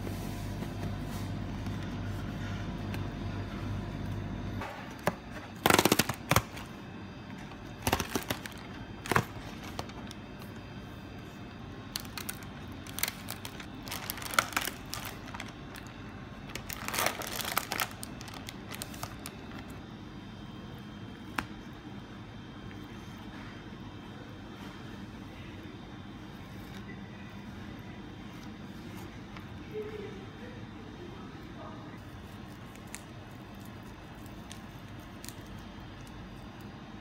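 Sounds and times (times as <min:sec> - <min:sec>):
plastic film crinkling: 0:05.6 - 0:06.7, 0:07.7 - 0:10.2, 0:11.8 - 0:19.8, 0:32.0 - 0:36.7.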